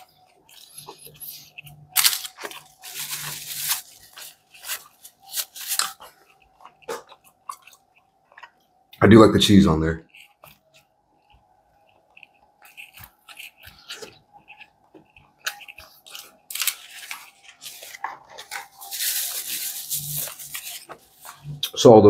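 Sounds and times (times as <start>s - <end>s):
chewing with wet mouth clicks: 5.8s - 9.0s, 10.1s - 16.5s
hands rustling in cardboard boxes: 16.6s - 21.4s.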